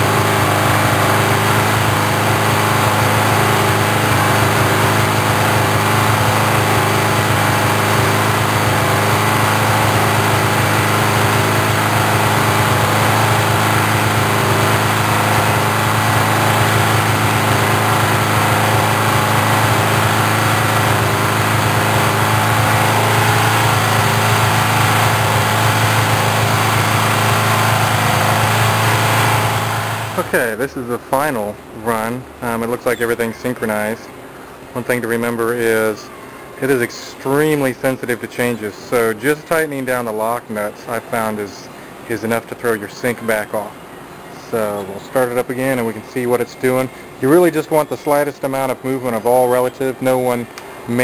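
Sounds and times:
motorcycle engine idling: 0.0 - 30.6.

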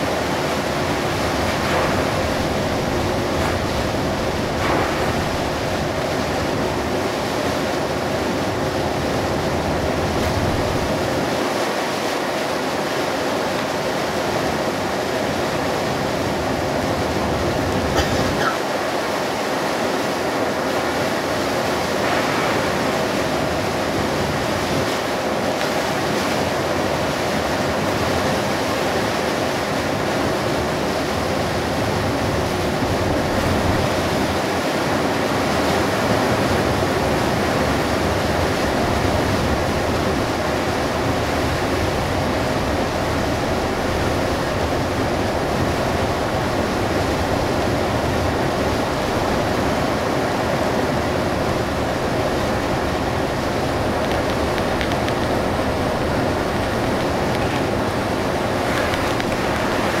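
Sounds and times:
rain on bus: 0.0 - 7.2, 9.2 - 11.8, 36.0 - 60.0
tyres on flooded road: 0.0 - 60.0.

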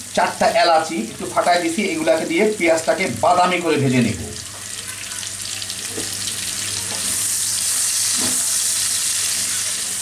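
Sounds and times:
onions sizzling in hot oil: 0.0 - 10.0
spatula scraping a pan: 6.9 - 9.6.

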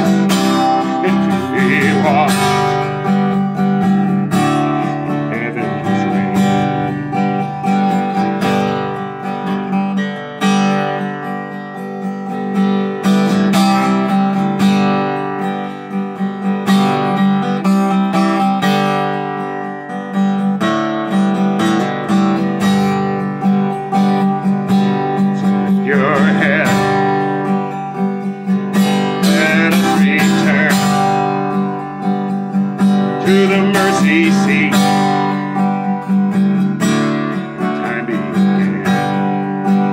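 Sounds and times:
acoustic guitar strumming: 0.0 - 39.9
man singing: 0.8 - 3.1, 5.0 - 7.2, 25.2 - 27.6, 29.2 - 31.5, 33.0 - 35.8, 37.4 - 39.9.

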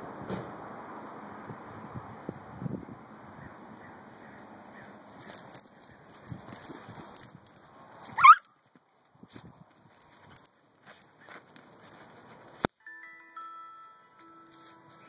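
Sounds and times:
animals scuffling on dirt: 4.2 - 12.7, 14.1 - 15.0.

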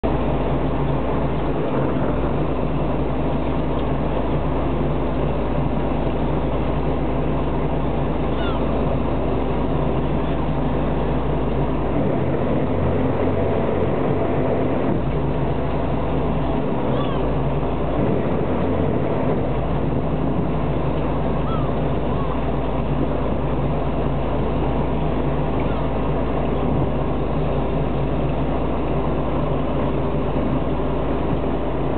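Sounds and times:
boat engine humming: 0.0 - 31.9
faint seagull calls: 8.3 - 8.8, 16.8 - 17.4, 21.3 - 22.5, 25.6 - 25.9.

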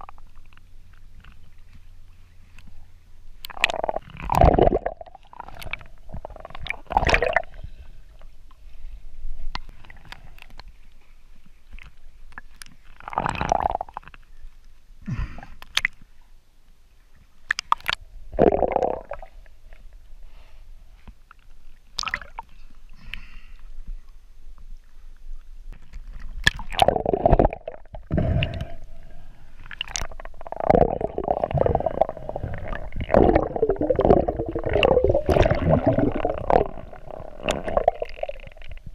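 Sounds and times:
muffled underwater gurgling: 3.4 - 7.8, 26.5 - 38.9.

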